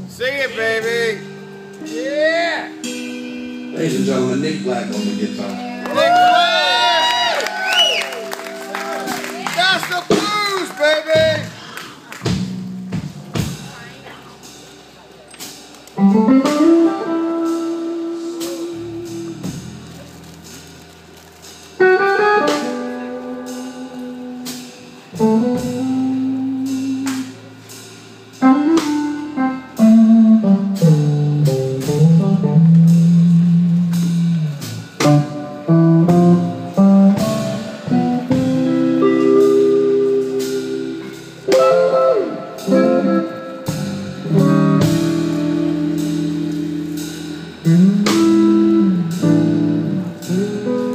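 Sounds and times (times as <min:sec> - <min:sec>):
drum kit: 0:00.0 - 0:50.9
electric guitar solo: 0:04.7 - 0:12.4, 0:16.0 - 0:20.4, 0:21.8 - 0:27.4, 0:28.4 - 0:50.9.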